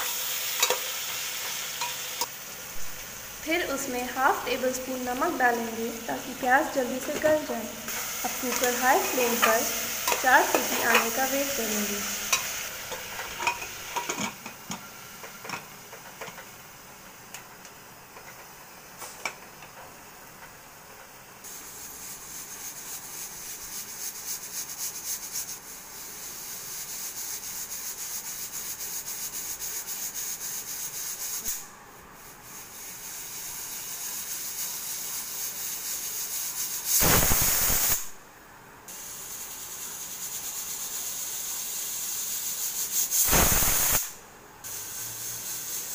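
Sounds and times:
onions sizzling in oil: 0.0 - 38.2, 38.8 - 45.9
pressure cooker hissing: 0.0 - 38.2, 38.8 - 45.9
pressure cooker whistle: 36.7 - 38.1, 38.9 - 45.9.

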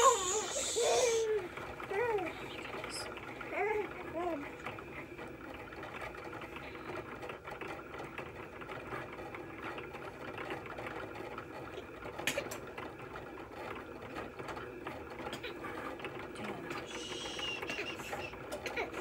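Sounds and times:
cutting machine running: 0.0 - 6.9, 16.4 - 19.0.

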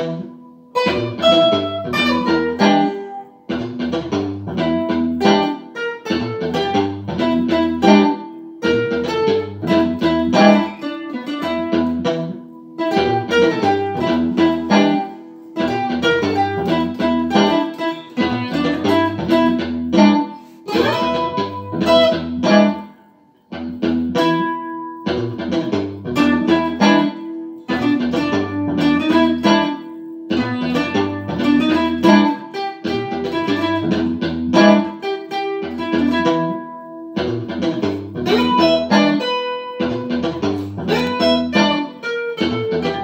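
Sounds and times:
looped bass line: 0.0 - 5.4, 6.1 - 10.8, 11.4 - 22.8, 23.5 - 29.7, 37.2 - 43.0
funk rhythm guitar: 0.0 - 43.0
lead guitar: 0.0 - 43.0.

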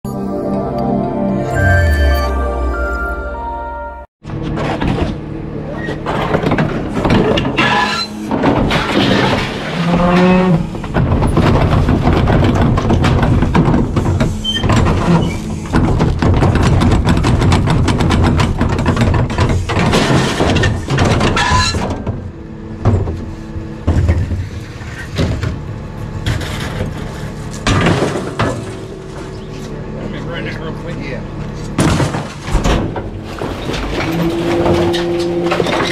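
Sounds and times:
garbage truck engine running: 0.1 - 35.9
trash clattering onto steel hopper: 5.9 - 29.6, 31.6 - 35.9.

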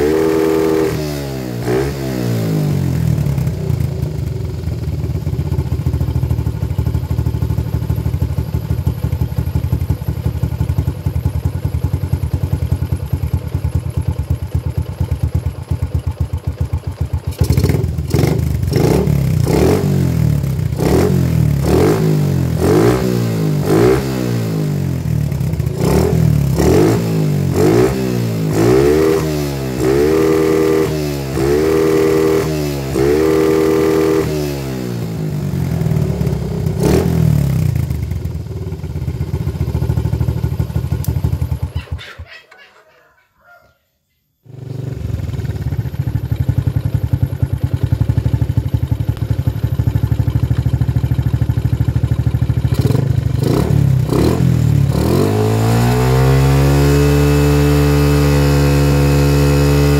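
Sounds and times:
motorcycle engine idling and revving: 0.0 - 42.2, 44.4 - 59.9.

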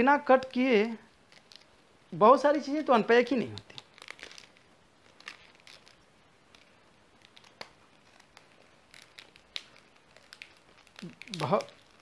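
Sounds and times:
scissors cutting plastic packaging: 2.7 - 12.0.

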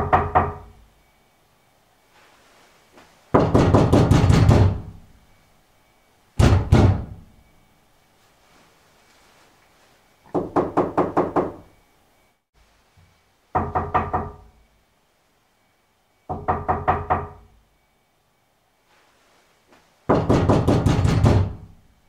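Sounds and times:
knocking on wooden door: 0.0 - 0.7, 3.3 - 4.9, 6.4 - 7.2, 10.3 - 11.6, 13.6 - 14.5, 16.3 - 17.4, 20.1 - 21.6.

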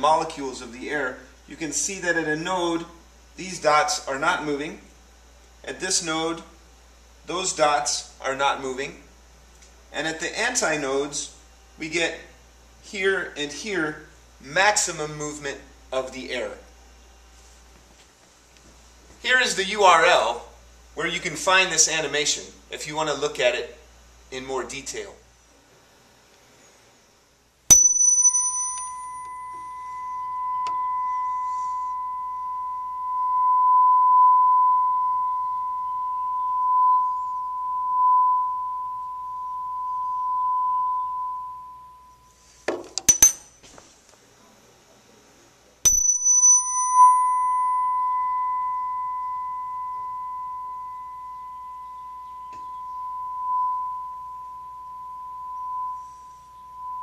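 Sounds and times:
tuning fork ringing tone: 27.7 - 43.6, 45.9 - 57.0.

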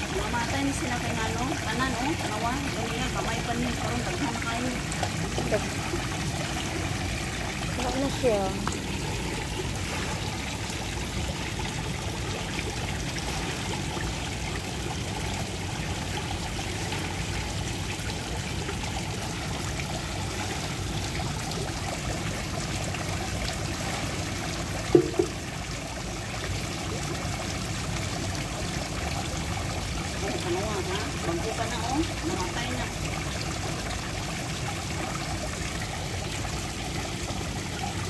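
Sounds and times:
trickle of running water: 0.0 - 38.0
double thump: 24.9 - 25.4.

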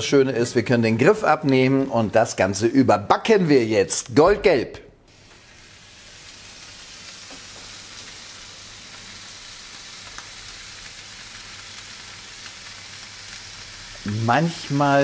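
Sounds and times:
meat sizzling in a pan: 5.1 - 15.0.

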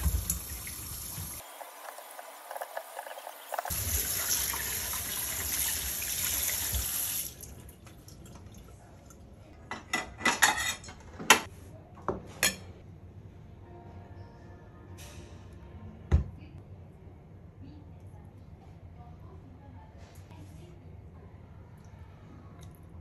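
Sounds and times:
kitchen tap running into sink: 0.0 - 8.7.

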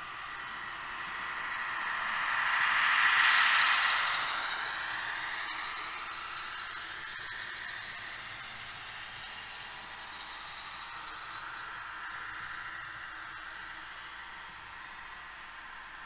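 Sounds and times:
model train motor whirring: 3.9 - 11.7.

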